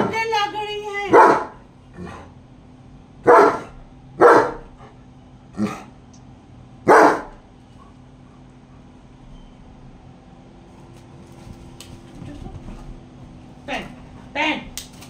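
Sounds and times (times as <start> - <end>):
dog barking: 1.1 - 1.6, 3.2 - 4.7, 6.8 - 7.4.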